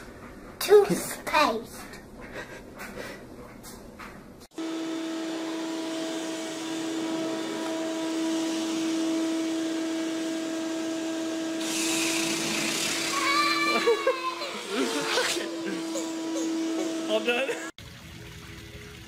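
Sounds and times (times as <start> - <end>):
electric motor humming: 4.5 - 17.7.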